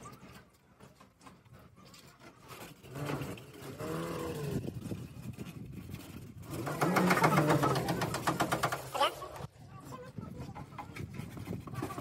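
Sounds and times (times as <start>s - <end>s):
motor engine running: 6.4s - 8.9s.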